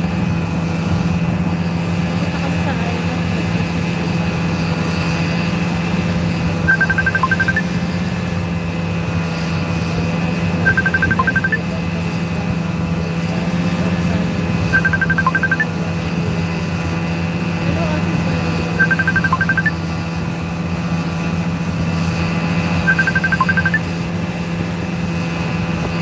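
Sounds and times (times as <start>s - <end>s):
short electronic beeps: 6.7s - 7.8s, 10.7s - 11.6s, 14.7s - 15.7s, 18.8s - 19.8s, 22.8s - 23.9s.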